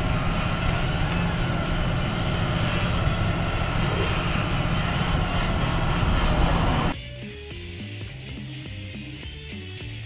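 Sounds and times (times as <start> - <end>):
machine droning: 0.0 - 7.0.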